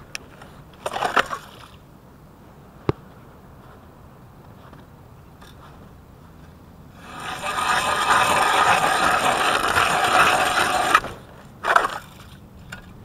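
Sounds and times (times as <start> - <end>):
ice auger grinding ice: 7.0 - 12.3.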